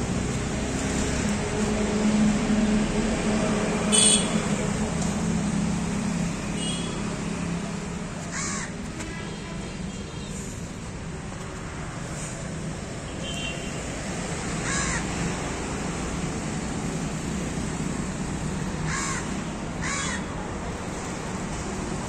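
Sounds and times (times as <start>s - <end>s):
crows cawing: 8.3s - 8.8s, 14.6s - 15.2s, 18.8s - 20.3s.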